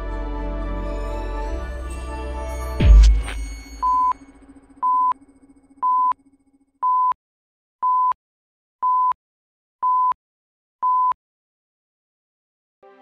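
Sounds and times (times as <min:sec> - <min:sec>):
countdown beeps: 0:02.9 - 0:04.2, 0:04.8 - 0:05.2, 0:05.8 - 0:06.2, 0:06.8 - 0:07.2.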